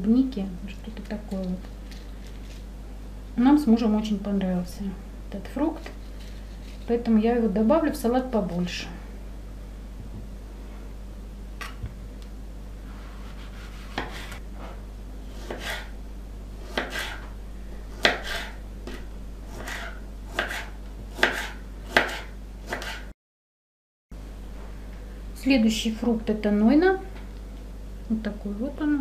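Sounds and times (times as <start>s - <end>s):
knife cutting fruit on wooden board: 13.1s - 16.0s, 16.6s - 17.3s, 17.9s - 23.1s.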